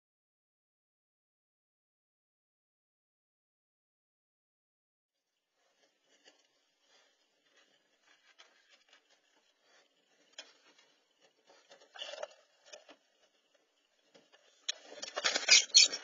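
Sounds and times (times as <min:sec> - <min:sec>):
faint ticks and rustles: 0:05.4 - 0:16.0
animal scuffle crackling and scraping: 0:14.2 - 0:16.0.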